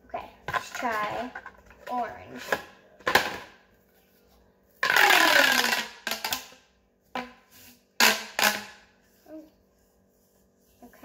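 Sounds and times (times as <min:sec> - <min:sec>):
plastic tube ratcheting crackle: 0:04.8 - 0:06.6, 0:08.0 - 0:08.8.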